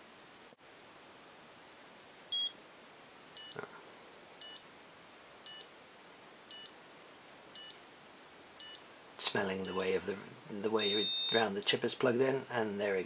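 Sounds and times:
short high beeps: 2.3s - 2.6s, 10.8s - 11.4s.

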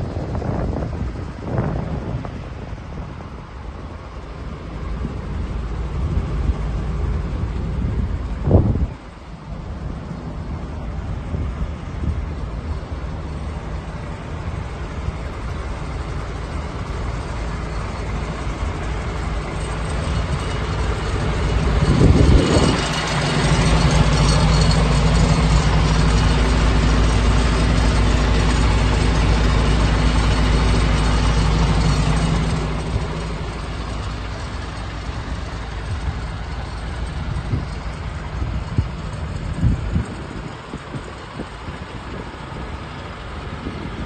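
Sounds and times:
diesel truck engine idling: 0.0s - 44.0s.

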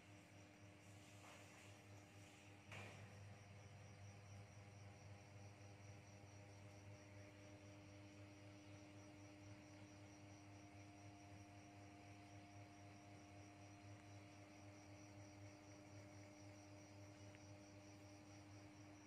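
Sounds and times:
faint low hum: 0.0s - 19.0s.

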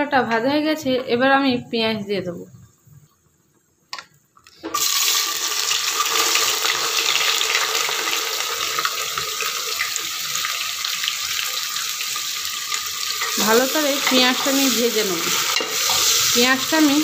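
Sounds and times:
onions sizzling in hot oil: 4.7s - 17.0s.

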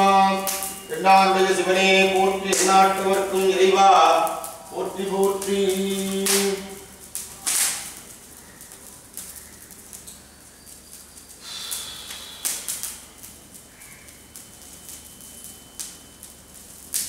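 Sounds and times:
loud sharp crack: 0.0s - 0.9s, 2.2s - 9.4s, 11.4s - 13.0s.

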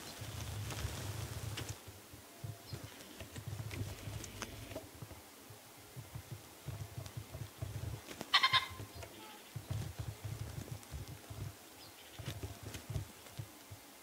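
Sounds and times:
pheasant crowing: 8.3s - 9.6s.

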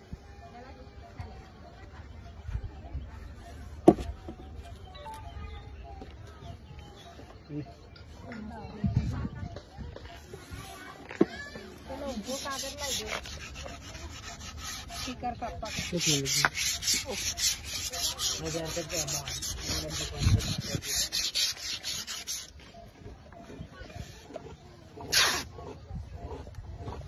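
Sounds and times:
sandpaper rubbing wood: 11.7s - 22.7s, 23.9s - 25.6s.

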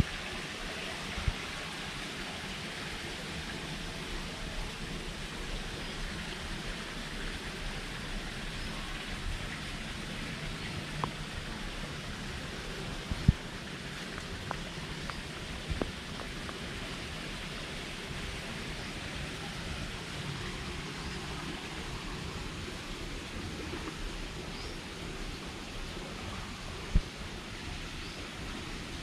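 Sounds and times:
rushing water hiss: 0.0s - 29.0s.

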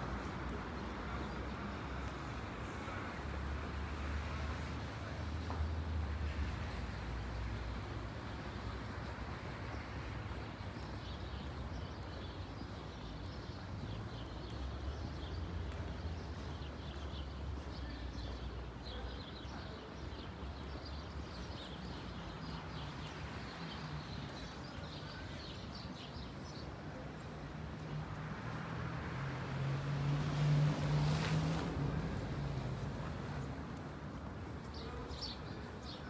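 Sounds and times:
traffic hum: 0.0s - 36.0s
vehicle driving past: 28.2s - 33.2s.

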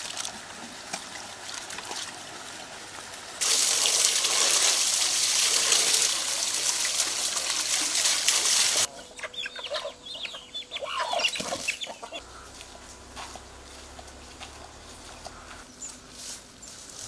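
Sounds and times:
chickens clucking: 8.8s - 16.8s.

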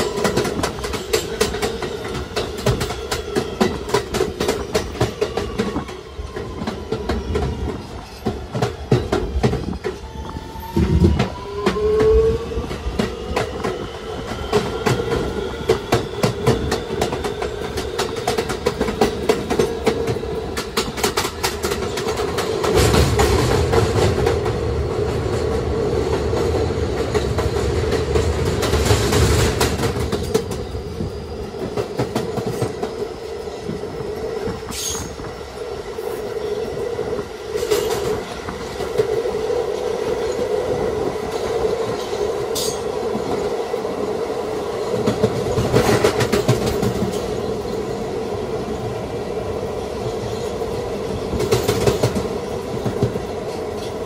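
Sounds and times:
subway car hum and rumble: 0.0s - 54.0s
wheels clacking over rail joints: 44.8s - 48.0s.

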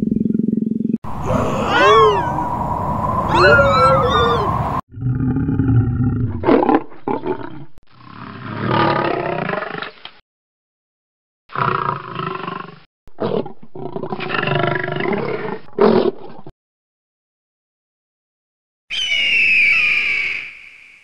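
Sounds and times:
lion roaring: 1.1s - 9.8s.

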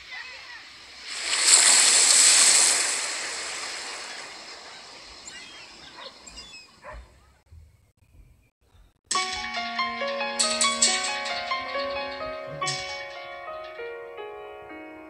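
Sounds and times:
ocean wave washing over sand: 0.0s - 6.2s.

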